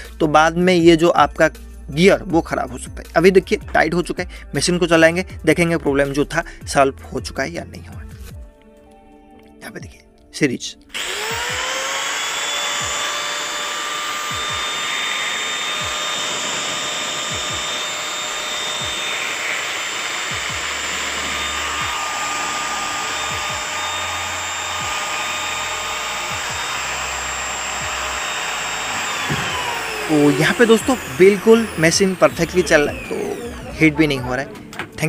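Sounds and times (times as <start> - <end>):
angle grinder whine: 10.9 - 34.5.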